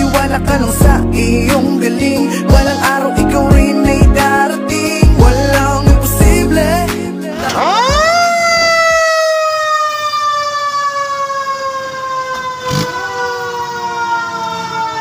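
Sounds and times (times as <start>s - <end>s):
fire truck siren wailing: 7.3s - 15.0s.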